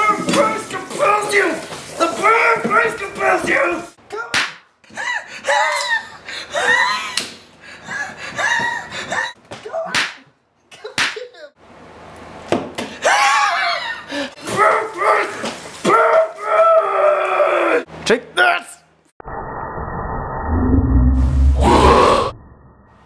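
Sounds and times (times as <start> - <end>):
sharp slaps: 4.3 - 4.7, 9.6 - 10.3, 11.0 - 11.3
man screaming and shrieking: 13.0 - 15.3, 15.9 - 17.9, 21.5 - 22.4.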